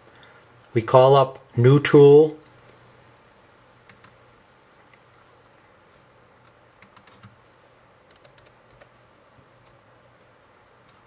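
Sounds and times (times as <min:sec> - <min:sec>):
laptop keys clicking: 0:03.8 - 0:04.2, 0:06.4 - 0:07.4, 0:08.0 - 0:09.8.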